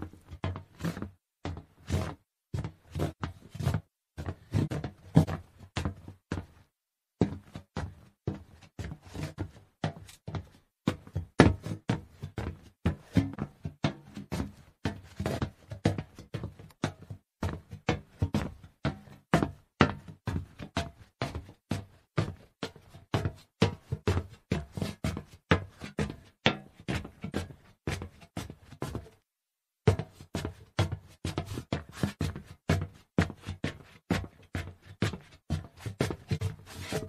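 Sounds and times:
footsteps on hollow metal: 0.1 - 6.6, 7.2 - 29.2.

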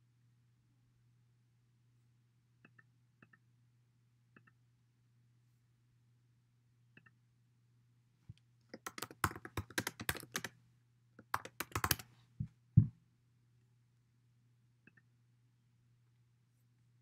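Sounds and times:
louder keyboard clicks: 8.7 - 10.6, 11.2 - 12.1
typing on computer keyboard: 8.8 - 10.6, 11.2 - 12.1.

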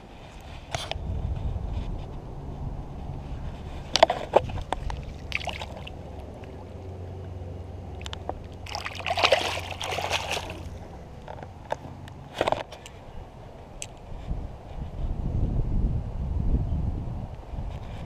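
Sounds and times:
water splashing: 3.9 - 7.0, 7.9 - 11.1.

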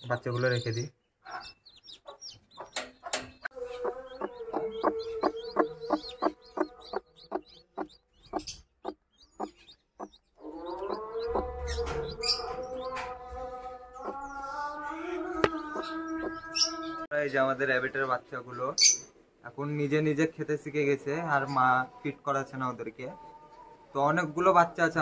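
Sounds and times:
chickens clucking: 0.0 - 17.0
chicks peeping: 0.0 - 18.7.

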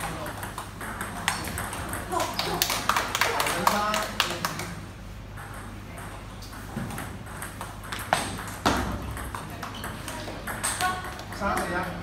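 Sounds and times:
ping pong ball bouncing on table: 0.0 - 2.5, 5.4 - 12.0
ping pong ball clicking off paddles: 0.0 - 12.0.

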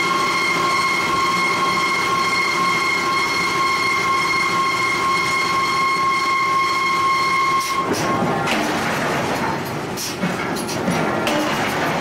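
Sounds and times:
high-pitched machine whine: 0.0 - 8.2.

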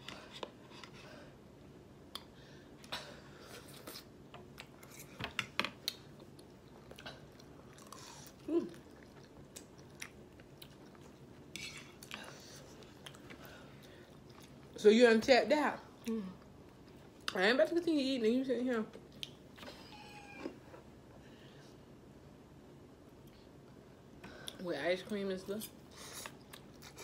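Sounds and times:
people chewing noodles: 5.8 - 14.8, 25.9 - 27.0.

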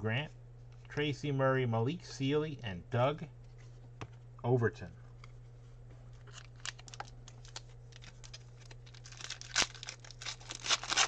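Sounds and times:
faint electrical hum: 0.0 - 11.0
foil wrapper crinkling: 6.2 - 11.0.

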